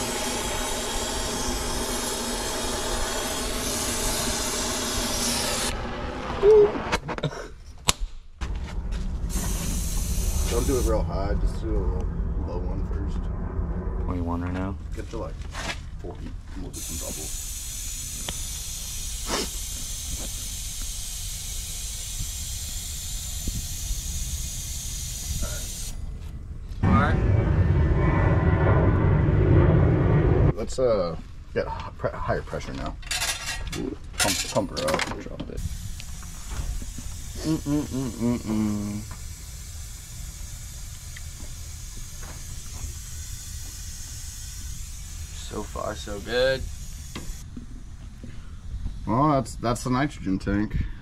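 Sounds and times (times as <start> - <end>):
brazing torch hissing: 0.0 - 6.6, 8.8 - 11.7, 16.7 - 26.2, 35.6 - 47.5
low rumble: 8.3 - 19.2, 21.8 - 32.5
brief loud sound: 26.8 - 30.6.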